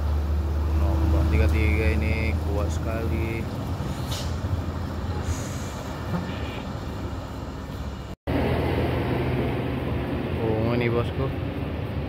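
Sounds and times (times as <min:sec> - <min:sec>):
heavy vehicle engine rumble: 0:00.0 - 0:12.0
road noise: 0:00.0 - 0:12.0.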